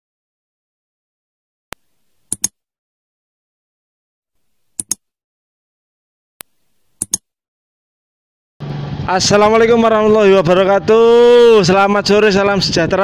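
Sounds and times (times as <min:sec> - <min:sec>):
mouse clicks: 0:01.7 - 0:02.6, 0:04.6 - 0:05.0, 0:06.4 - 0:07.3.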